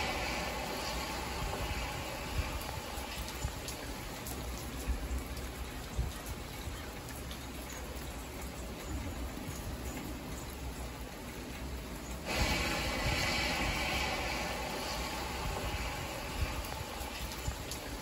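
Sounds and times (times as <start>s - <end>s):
rain on car windshield and roof: 0.0s - 18.0s
road rumble: 0.0s - 18.0s
sharp taps of raindrops: 0.6s - 10.3s.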